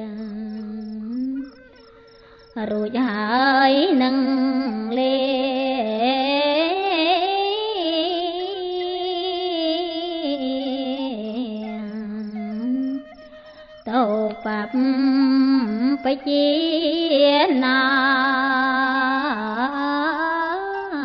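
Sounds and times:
woman chanting: 0.0 - 1.8, 2.4 - 21.0.

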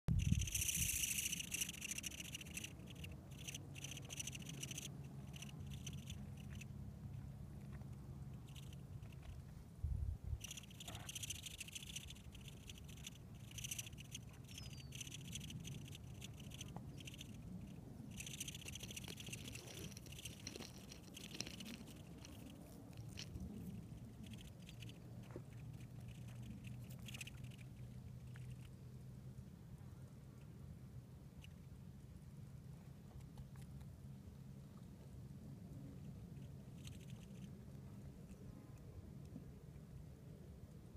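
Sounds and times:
insect high-pitched chirring: 0.1 - 6.7, 8.3 - 9.4, 10.4 - 28.7, 36.4 - 37.5.

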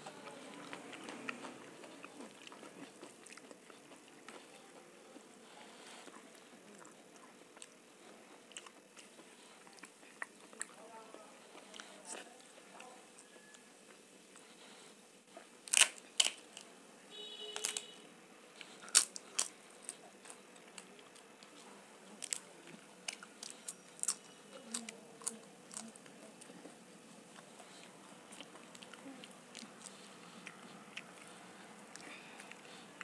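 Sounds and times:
crisp papad crunching: 14.4 - 16.8, 17.5 - 17.9, 18.6 - 26.8.

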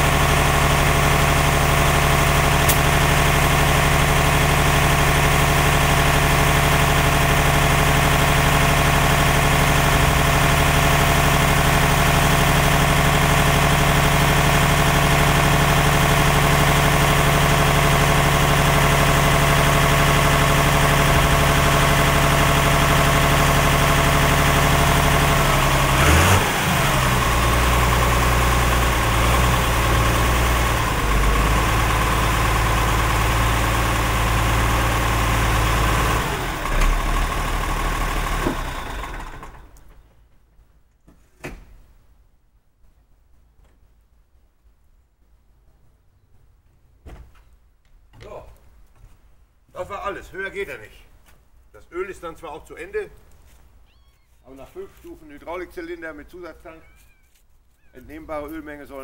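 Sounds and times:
tractor diesel engine running: 0.0 - 40.3.

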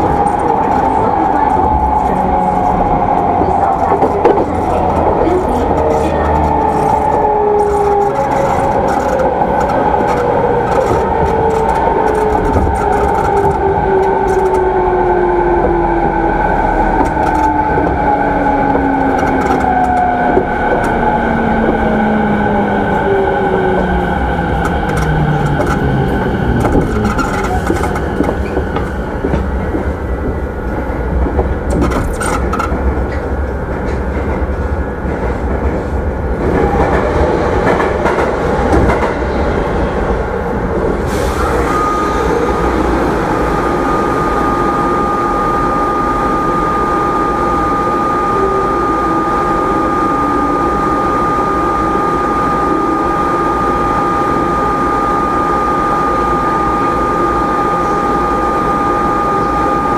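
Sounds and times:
wheel and rail noise: 0.0 - 46.3
steady high whine: 40.3 - 59.9.

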